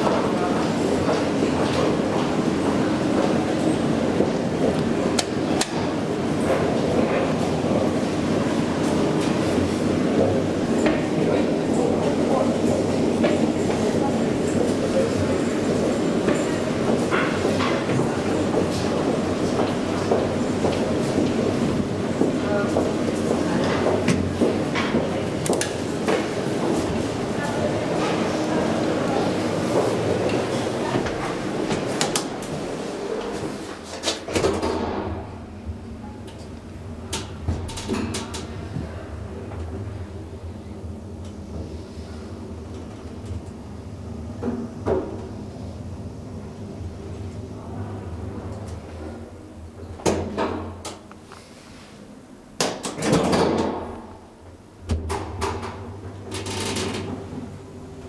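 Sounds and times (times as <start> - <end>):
elevator machinery hum: 0.0 - 58.0
elevator door shutting clatter: 29.1 - 39.9, 52.6 - 58.0.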